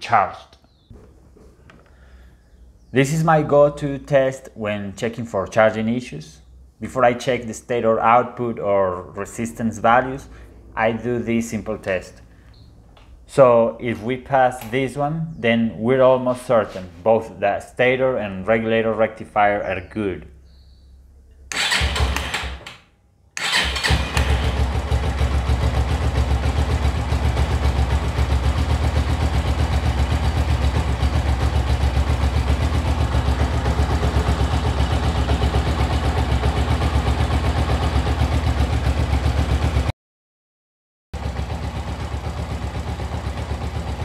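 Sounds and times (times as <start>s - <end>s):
motorcycle engine idling: 23.4s - 39.9s, 41.2s - 44.0s.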